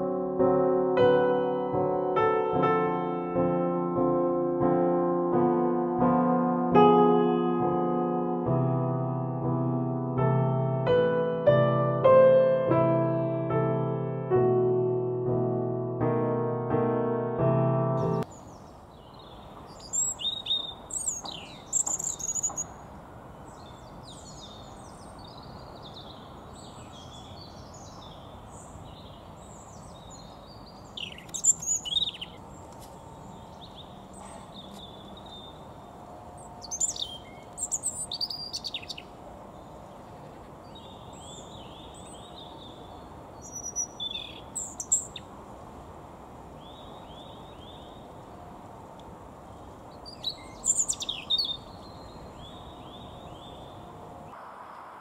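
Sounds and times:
bird singing: 18.0 - 45.3, 46.6 - 48.2, 49.5 - 54.0
background hiss: 18.2 - 55.0
bird twittering: 19.7 - 22.8, 30.9 - 32.4, 36.6 - 39.1, 43.4 - 45.3, 50.0 - 53.8.

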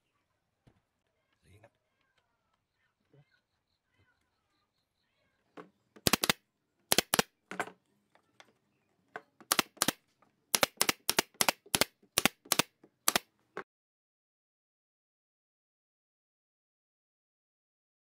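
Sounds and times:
nail gun firing: 6.0 - 7.3, 9.5 - 13.3.

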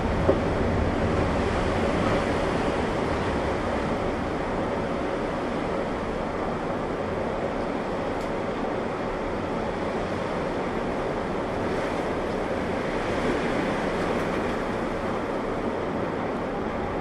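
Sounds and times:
wind: 0.0 - 17.0.

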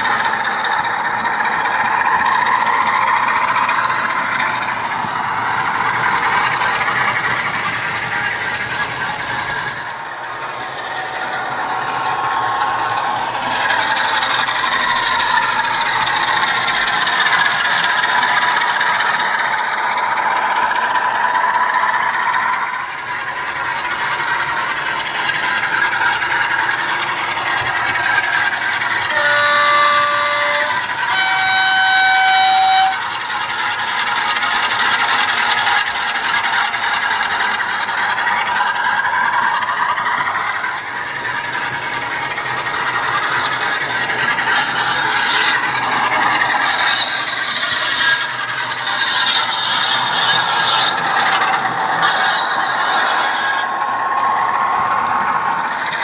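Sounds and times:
two-tone train horn: 29.0 - 33.1.

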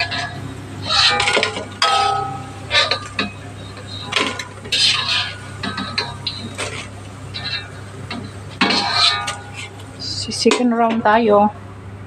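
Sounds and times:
steady low hum: 0.0 - 12.0
metal spatula scraping a wok: 3.9 - 7.8, 8.5 - 9.8.

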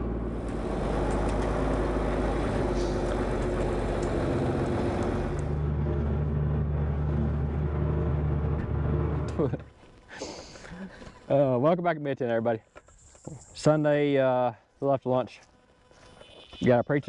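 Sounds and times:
tractor engine running: 0.0 - 9.6.

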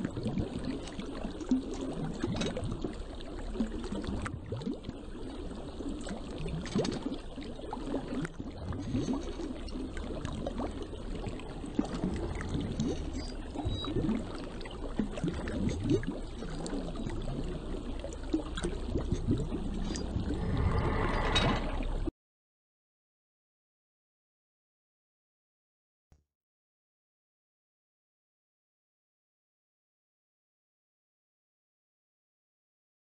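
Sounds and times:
water splashing around wheel paddles: 0.0 - 22.1.

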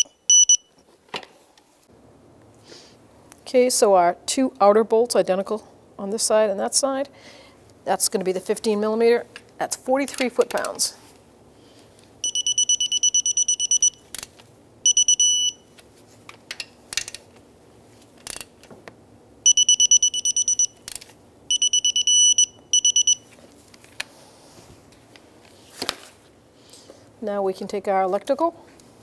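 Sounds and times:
torque wrench beeping: 0.0 - 0.7, 12.2 - 14.0, 14.8 - 15.6, 19.4 - 23.2.

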